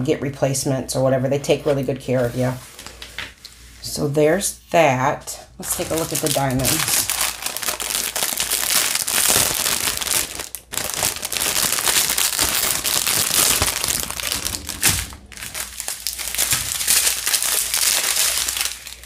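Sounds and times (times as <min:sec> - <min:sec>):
plastic bags crinkling: 0:05.6 - 0:19.0.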